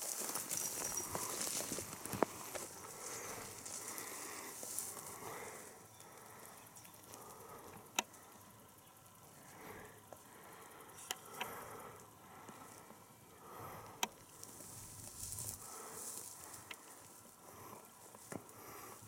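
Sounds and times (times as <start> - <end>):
footsteps in dry grass: 0.0 - 8.4, 14.2 - 19.0.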